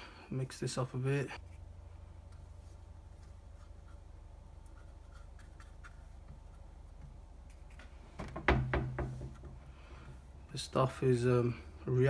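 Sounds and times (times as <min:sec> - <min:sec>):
low steady hum: 0:00.0 - 0:12.0
brush scratching on plastic: 0:01.4 - 0:08.0.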